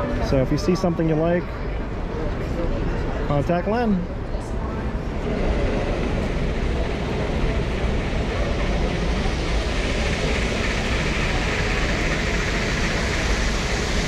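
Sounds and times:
busy hall background noise: 0:00.0 - 0:14.0
model train rolling rumble and hiss: 0:05.0 - 0:14.0.

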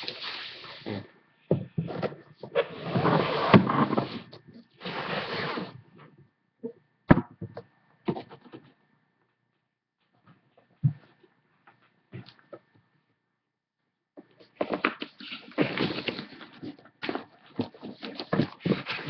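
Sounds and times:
rubbing and rustling on microphone: 0:14.3 - 0:19.0.

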